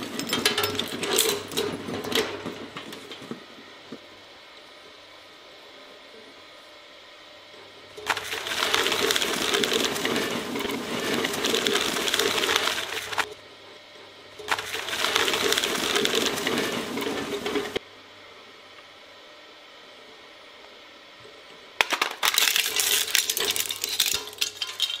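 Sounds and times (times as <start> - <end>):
shredder tearing card: 8.0 - 13.3, 14.5 - 17.8, 21.8 - 25.0.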